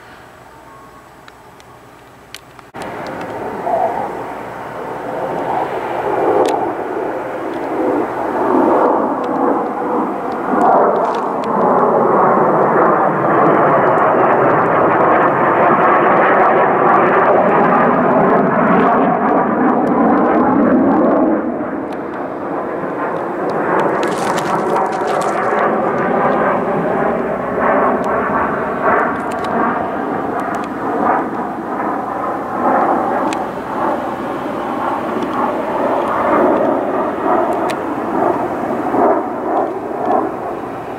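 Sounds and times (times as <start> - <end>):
fighter jets roaring overhead: 0.0 - 40.9.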